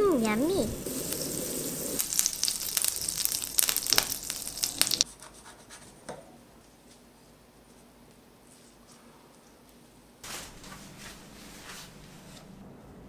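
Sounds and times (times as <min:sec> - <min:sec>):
butter sizzling in a frying pan: 0:00.2 - 0:05.0.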